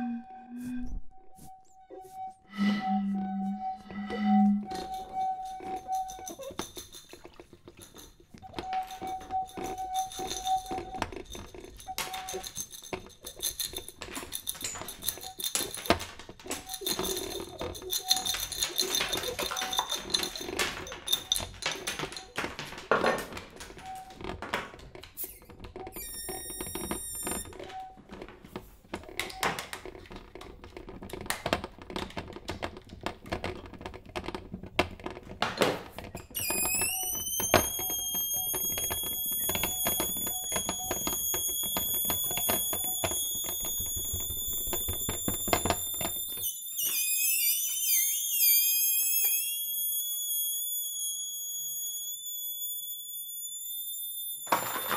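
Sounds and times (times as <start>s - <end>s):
high ringing note: 0.0s - 6.5s
high steady whistling tone: 0.0s - 6.9s, 7.9s - 12.7s, 36.4s - 54.9s
tapping and rattling household objects: 4.6s - 46.5s, 54.4s - 54.9s.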